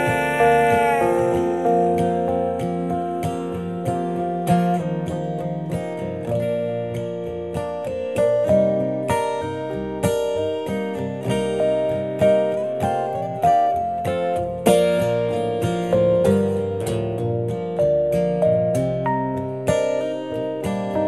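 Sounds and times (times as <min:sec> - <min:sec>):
upright double bass: 0:00.0 - 0:02.5
piano melody: 0:00.0 - 0:05.0
strummed acoustic guitar: 0:00.0 - 0:21.0.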